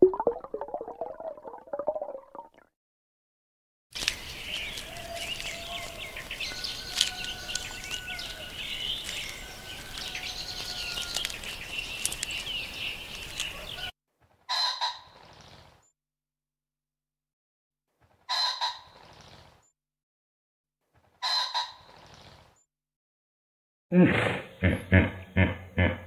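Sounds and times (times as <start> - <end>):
small birds chirping: 4.0 - 13.9, 18.8 - 19.7, 21.6 - 22.6.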